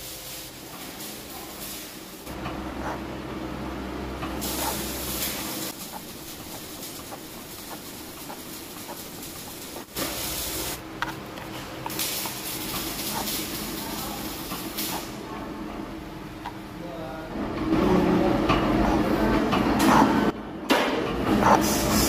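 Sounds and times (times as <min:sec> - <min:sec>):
hissy cutting noise: 0:04.4 - 0:10.8, 0:11.8 - 0:15.2.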